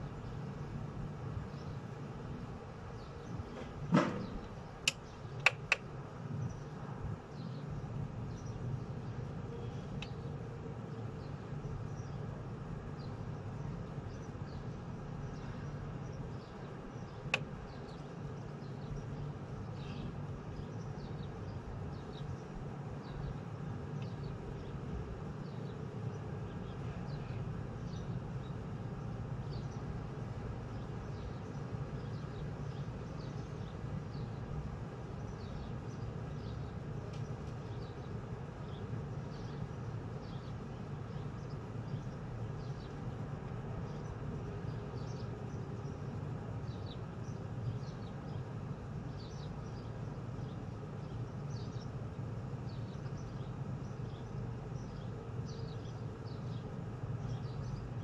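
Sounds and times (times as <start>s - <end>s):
birds chirping: 0.0s - 58.0s
distant traffic hum: 0.0s - 58.0s
sharp clicks: 4.8s - 5.9s
faint bird chirps: 9.5s - 12.2s, 14.0s - 23.4s.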